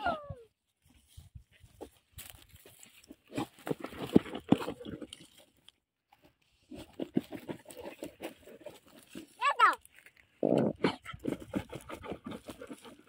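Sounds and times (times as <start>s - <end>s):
dog digging in dry soil: 1.6s - 5.6s, 6.5s - 13.0s.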